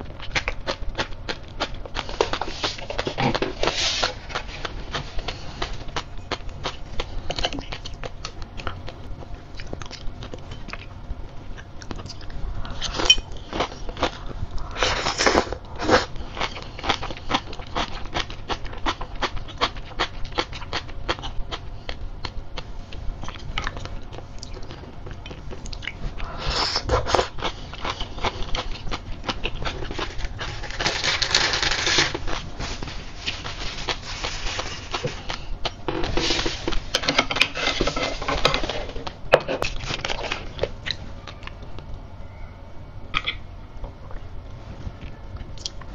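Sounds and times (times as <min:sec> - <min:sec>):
chewing with tiny pops: 0:00.1 - 0:14.7, 0:15.6 - 0:26.3, 0:45.0 - 0:45.9.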